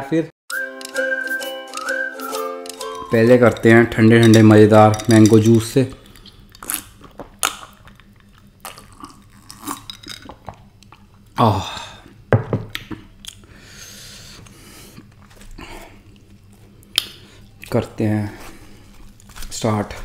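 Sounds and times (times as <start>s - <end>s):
gulping and swallowing juice: 6.6s - 11.2s.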